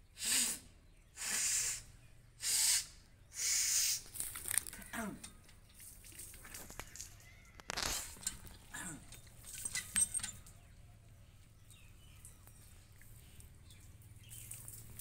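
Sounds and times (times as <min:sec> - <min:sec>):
dry leaves and straw rustling: 0:04.0 - 0:04.9, 0:05.9 - 0:08.4.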